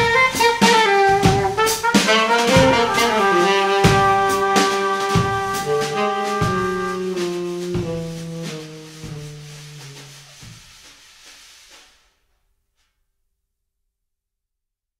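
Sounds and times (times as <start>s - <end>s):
trumpet and saxophone long notes: 0.0s - 10.5s
drum hits: 0.0s - 11.0s.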